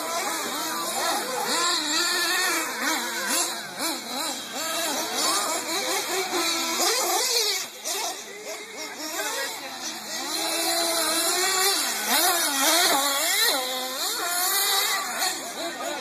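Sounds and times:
small engines whining: 0:00.0 - 0:16.0.

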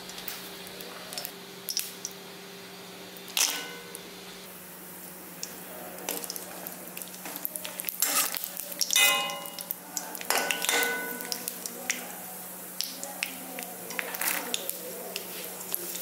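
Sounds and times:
nuts sizzling in hot fat: 0:00.0 - 0:16.0
pan ringing: 0:03.5 - 0:04.0, 0:09.0 - 0:09.8
metal spatula scraping pan: 0:08.0 - 0:08.4.

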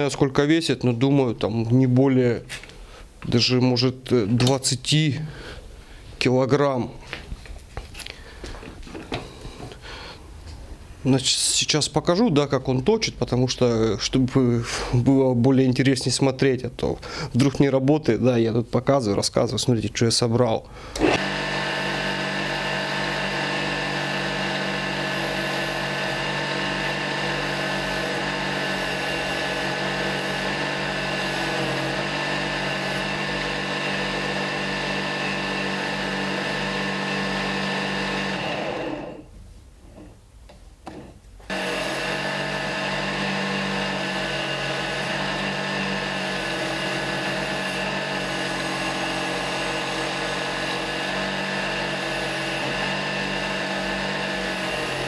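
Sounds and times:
chisel cutting spinning wood: 0:21.0 - 0:39.2, 0:41.5 - 0:55.0
electric motor humming: 0:21.0 - 0:39.2, 0:41.5 - 0:55.0.

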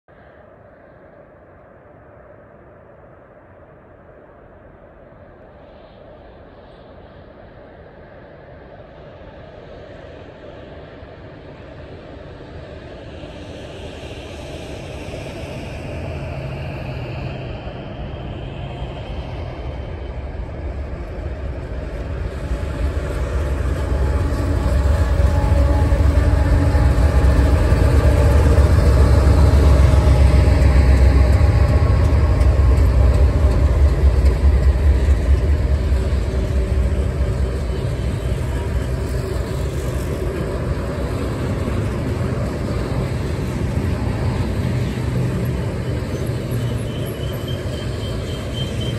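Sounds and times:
diesel locomotive engine rumble: 0:05.6 - 0:48.9
train wheels rolling on rails: 0:11.5 - 0:48.9.

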